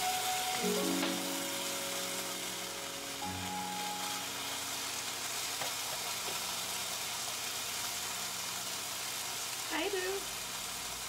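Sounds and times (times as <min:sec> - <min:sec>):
soft background music: 0:00.0 - 0:06.0
meat sizzling in a skillet: 0:00.0 - 0:11.0.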